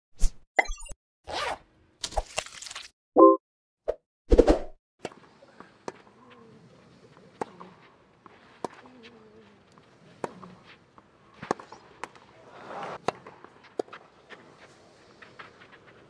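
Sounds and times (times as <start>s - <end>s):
faint crowd murmur: 5.3s - 8.0s
racket striking tennis ball: 11.4s - 12.2s, 13.0s - 14.1s.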